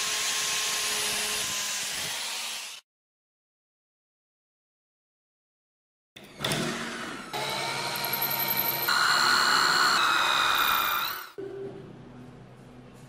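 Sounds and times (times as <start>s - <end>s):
electric drill whining: 0.0s - 2.8s, 6.2s - 11.4s.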